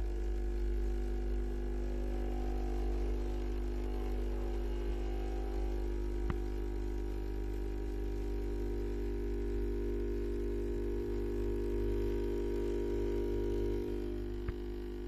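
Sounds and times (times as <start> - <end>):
espresso machine pump buzzing: 0.0 - 15.0
small tick: 6.2 - 7.1, 14.4 - 14.7.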